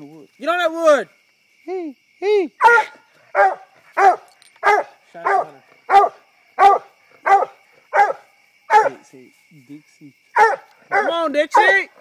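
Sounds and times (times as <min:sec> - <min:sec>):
dog barking: 0:02.6 - 0:09.0, 0:10.4 - 0:11.8.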